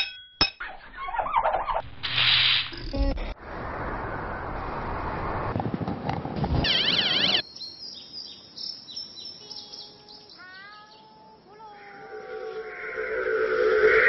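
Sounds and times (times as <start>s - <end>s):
loud rushing noise with warbling trill: 12.4s - 14.0s.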